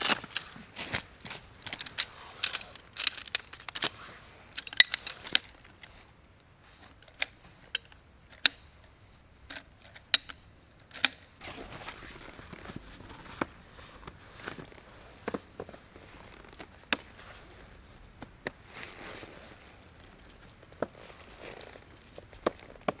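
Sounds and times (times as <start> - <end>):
poles clicking and clacking: 0.0 - 5.9
fabric rustling: 11.4 - 18.0, 18.6 - 23.0.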